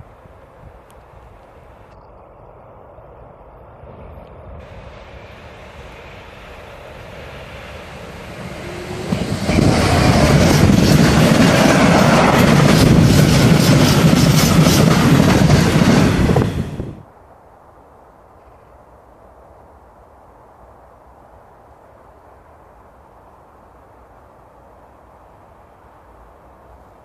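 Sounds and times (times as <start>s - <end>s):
diesel locomotive passing: 3.8s - 17.0s
wagons rumbling on rails: 4.6s - 17.0s.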